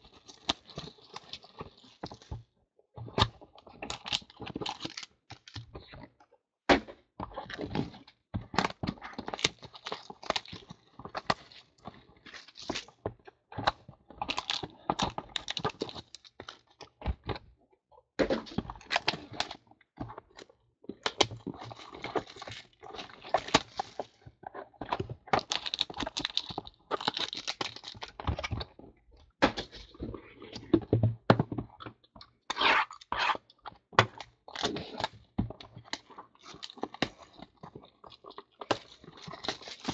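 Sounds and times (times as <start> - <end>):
wrapping tearing and crinkling: 0.0 - 2.3, 3.9 - 5.7, 9.2 - 13.0, 14.3 - 16.8, 21.1 - 24.2, 25.4 - 28.7, 34.1 - 39.9.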